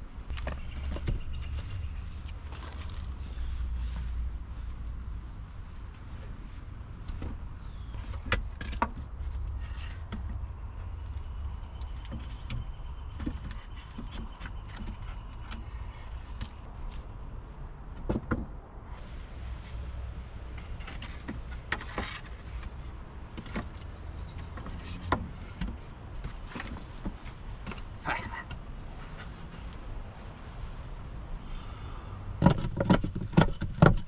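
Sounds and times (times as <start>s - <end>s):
wooden poles knocking: 7.0s - 17.0s, 17.8s - 18.9s, 20.5s - 29.7s, 32.4s - 34.0s.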